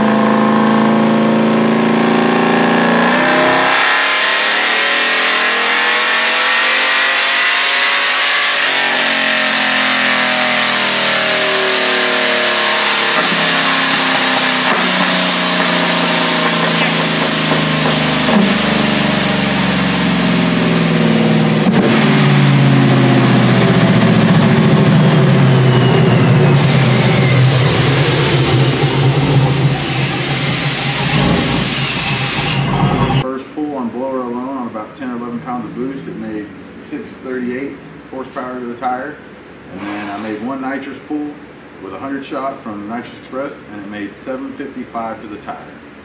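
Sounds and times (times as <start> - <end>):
engine revving at full throttle: 0.0 - 33.2
supercharger whine: 0.0 - 33.2.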